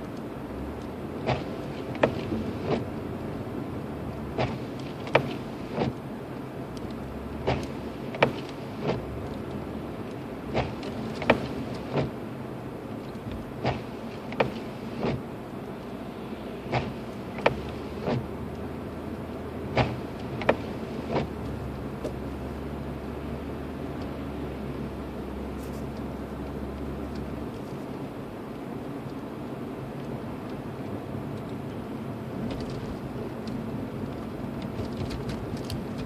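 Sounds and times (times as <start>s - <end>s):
engine and road rumble: 0.0s - 36.0s.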